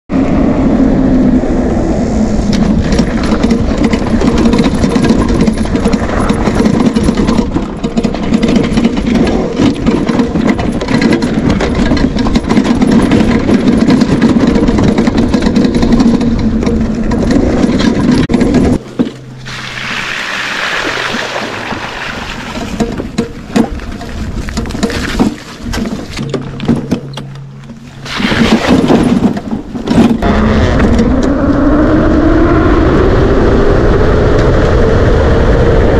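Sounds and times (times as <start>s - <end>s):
wind on microphone: 0.1s - 26.7s, 27.9s - 35.9s
tyres rumbling: 0.1s - 35.9s
water splashing: 19.3s - 22.8s, 27.9s - 29.2s.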